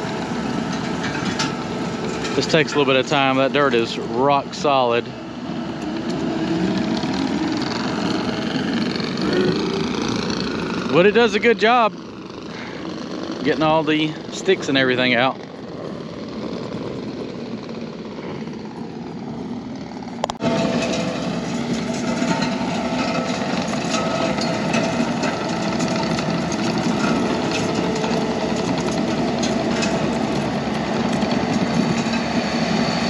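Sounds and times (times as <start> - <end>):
rake dragging through hard dirt: 0.0 - 11.9, 19.7 - 33.0
diesel engine running under load: 0.0 - 33.0.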